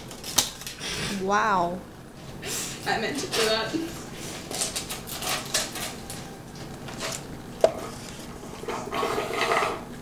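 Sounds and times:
straw scraping inside plastic cup: 0:06.9 - 0:09.8.

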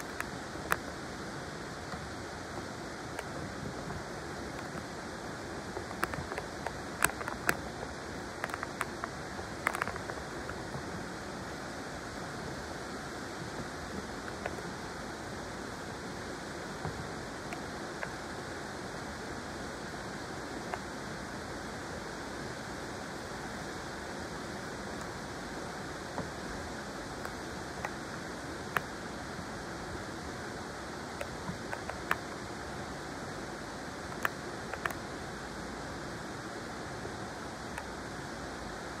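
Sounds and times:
sharp clicks: 0:00.0 - 0:00.9, 0:05.8 - 0:07.7, 0:08.3 - 0:10.2
flowing river water: 0:00.0 - 0:39.0.

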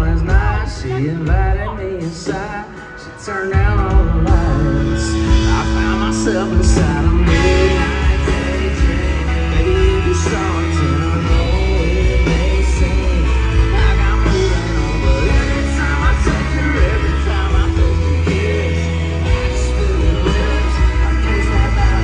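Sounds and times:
live country-rock band playing: 0:00.0 - 0:22.0
man singing: 0:00.0 - 0:22.0.

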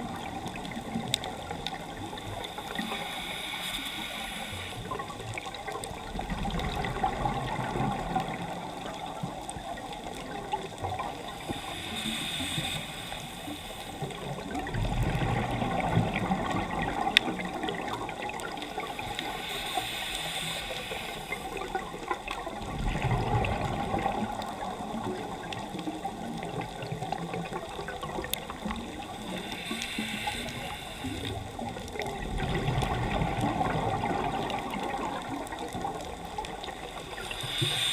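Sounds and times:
regulator hiss on inhale: 0:00.0 - 0:05.8, 0:11.0 - 0:14.5, 0:17.7 - 0:22.0, 0:28.2 - 0:32.2, 0:36.4 - 0:37.9
faint constant crackle: 0:00.0 - 0:37.9
rush of bubbles: 0:00.0 - 0:37.9.

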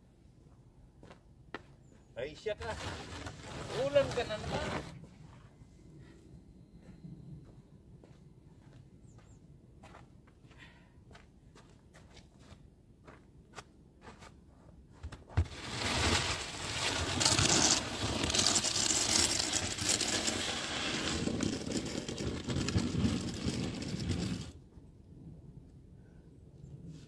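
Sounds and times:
snow shovel scraping concrete: 0:02.6 - 0:05.0, 0:15.4 - 0:24.6
faint footsteps: 0:05.0 - 0:15.6.

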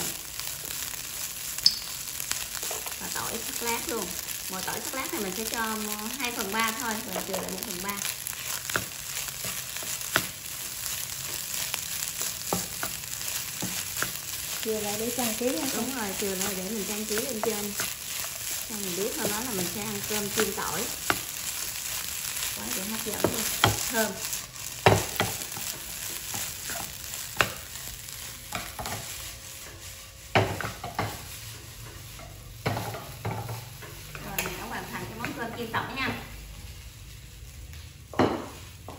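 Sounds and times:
rice sizzling in a hot pan: 0:00.0 - 0:38.9
wooden spatula knocking a wok: 0:04.8 - 0:11.5, 0:12.1 - 0:18.4, 0:19.1 - 0:21.4, 0:22.8 - 0:24.0, 0:24.8 - 0:27.7, 0:30.3 - 0:31.2, 0:32.1 - 0:35.8, 0:38.1 - 0:38.9.

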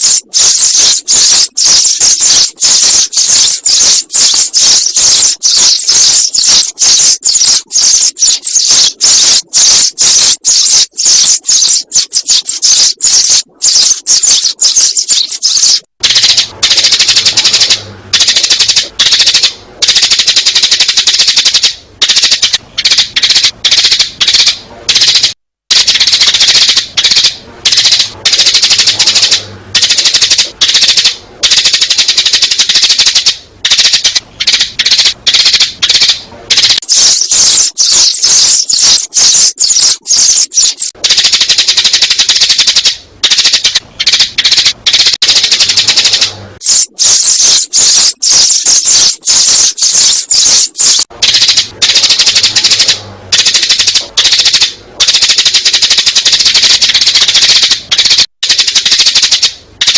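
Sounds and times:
sparrows chirping: 0:00.0 - 0:15.8, 0:36.6 - 0:40.9, 0:45.6 - 0:51.0.

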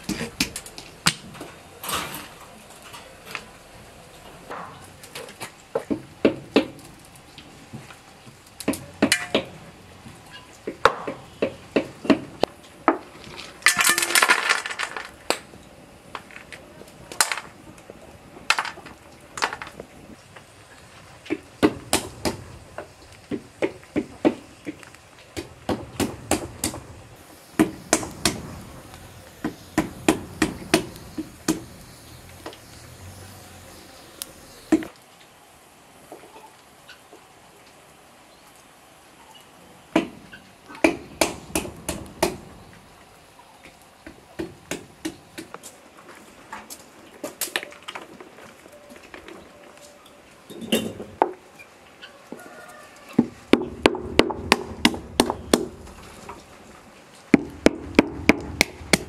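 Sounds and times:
shells clattering on metal tray: 0:13.7 - 0:15.2.

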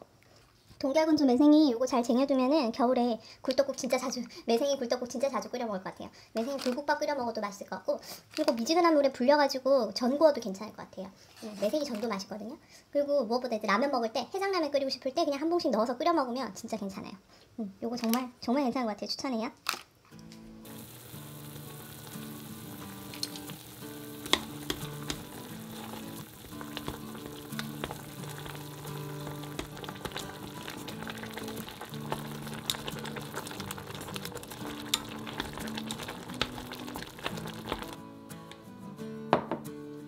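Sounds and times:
background music: 0:20.2 - 0:40.0
water bubbling in a pot: 0:20.6 - 0:38.0.

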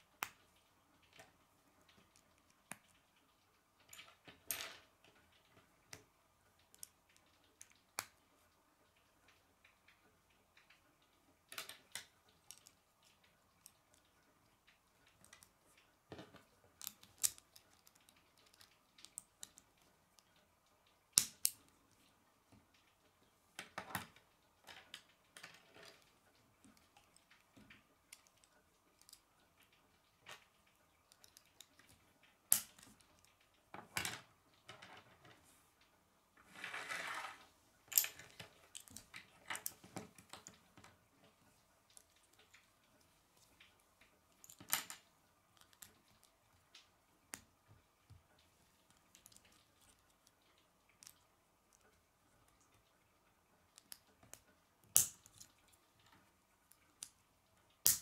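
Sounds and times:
plastic pieces snapping together: 0:16.2 - 0:19.6, 0:21.1 - 0:21.6, 0:54.9 - 0:55.5.

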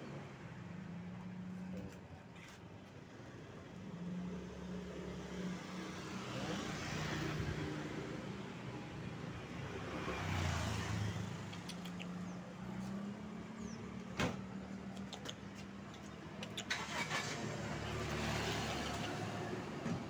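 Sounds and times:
road noise: 0:00.0 - 0:20.0
vehicle engine humming: 0:00.0 - 0:20.0
sharp click: 0:11.4 - 0:12.2.

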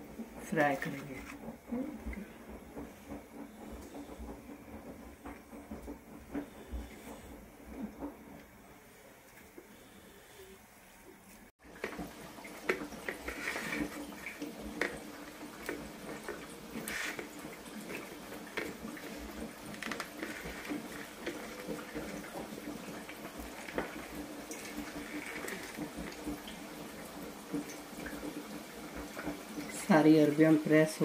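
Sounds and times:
food frying in hot oil: 0:19.8 - 0:31.0.

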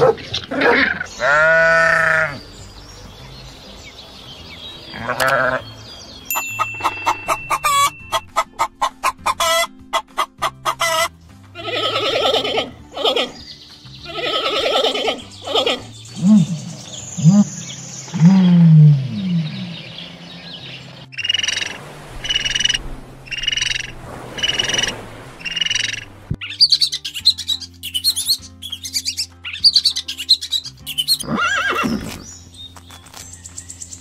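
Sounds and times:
hen clucking and cackling: 0:06.6 - 0:13.4, 0:14.1 - 0:19.7, 0:21.1 - 0:31.9
long drawn-out animal call: 0:11.6 - 0:13.4, 0:14.1 - 0:17.5.

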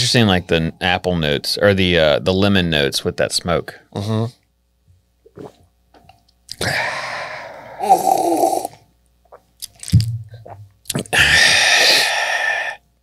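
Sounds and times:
person exhaling breathily: 0:06.6 - 0:08.7, 0:11.1 - 0:12.8.

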